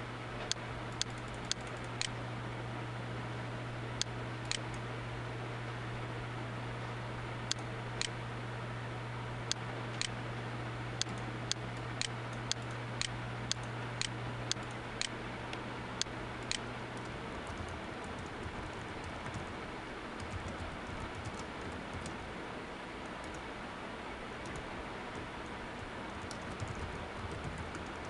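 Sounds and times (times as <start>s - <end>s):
low steady hum: 0.0s - 28.0s
computer keyboard typing: 0.9s - 2.2s, 11.0s - 14.8s, 16.4s - 19.6s, 20.2s - 22.2s, 24.4s - 28.0s.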